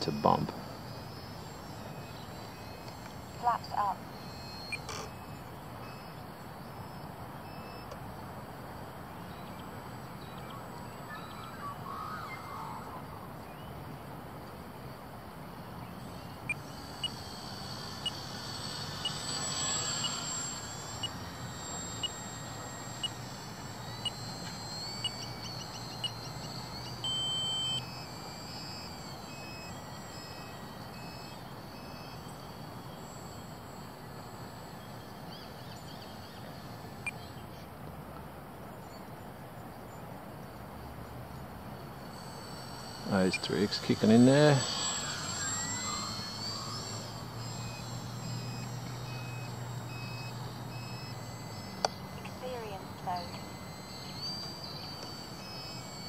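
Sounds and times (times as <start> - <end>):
short high beeps: 0.0 - 6.2, 16.0 - 37.3, 42.0 - 56.0
distant electric motor whine: 0.0 - 56.0.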